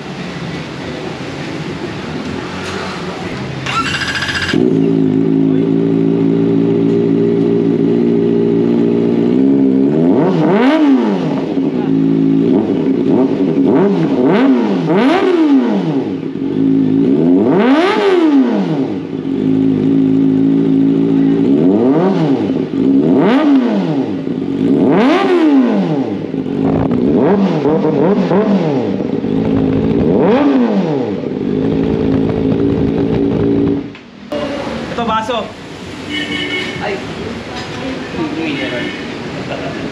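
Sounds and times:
motorcycle engine revving: 1.0s - 39.9s.

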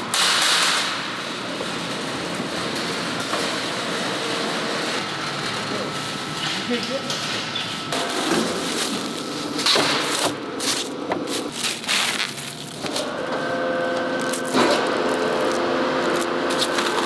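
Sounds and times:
steady machine hum: 0.0s - 17.0s
plastic film crinkling: 8.0s - 9.6s, 10.6s - 13.1s, 14.0s - 17.0s.

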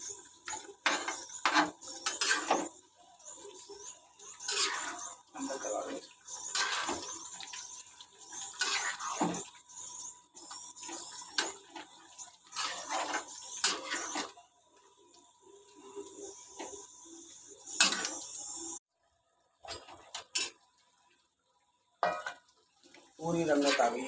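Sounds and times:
high sizzle: 0.0s - 18.9s, 19.6s - 24.0s
metal spatula scraping pan: 0.5s - 2.8s, 4.2s - 14.4s, 22.0s - 22.4s, 23.5s - 24.0s.

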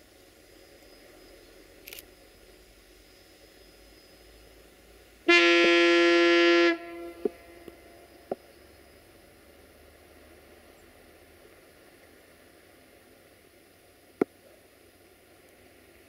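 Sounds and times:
train horn blast: 5.2s - 8.0s.

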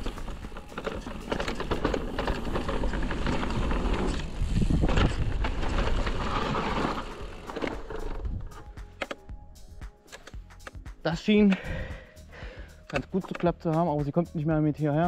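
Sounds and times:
bike tyres rolling on dirt: 0.0s - 8.7s
bike clicking and rattling: 0.0s - 9.3s, 10.0s - 12.0s, 12.6s - 14.1s.

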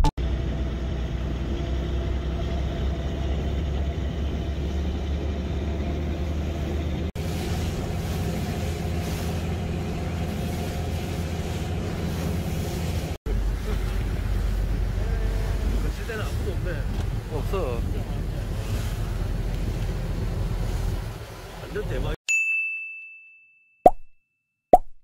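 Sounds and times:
boat engine droning: 0.0s - 22.2s
hiss: 7.2s - 13.2s.

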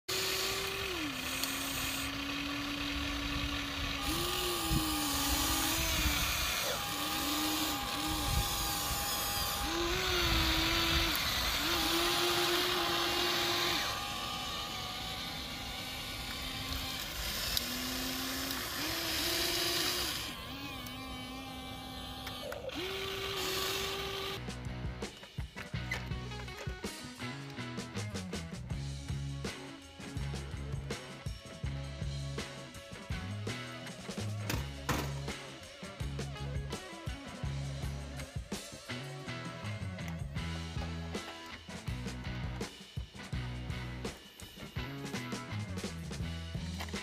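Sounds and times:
toy excavator motors whining: 0.0s - 24.4s, 25.1s - 27.6s, 46.6s - 47.0s.

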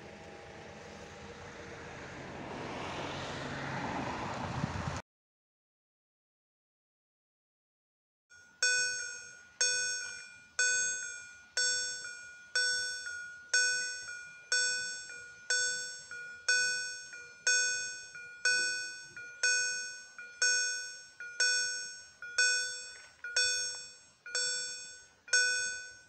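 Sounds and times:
level crossing warning bell: 8.3s - 26.0s.

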